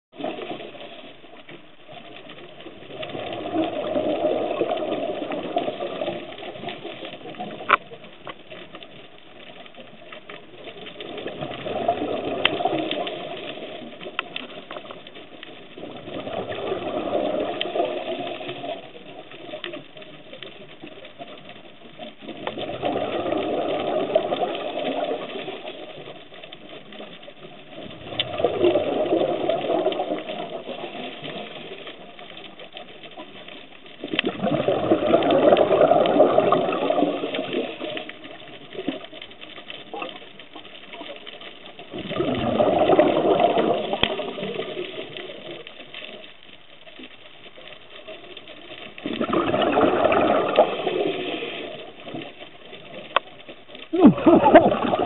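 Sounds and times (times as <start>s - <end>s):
diver bubbling exhalations: 22.6s - 24.8s, 34.3s - 37.8s, 41.9s - 44.8s, 49.0s - 51.9s, 53.9s - 55.0s.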